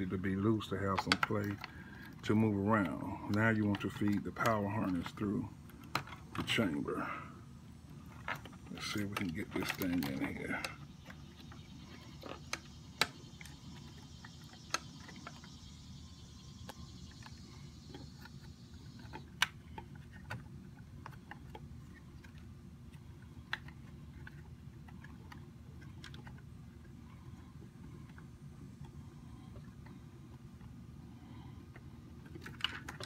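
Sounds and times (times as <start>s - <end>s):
steady low hum: 0.0s - 33.0s
plastic connectors clicking and tapping: 0.8s - 2.2s.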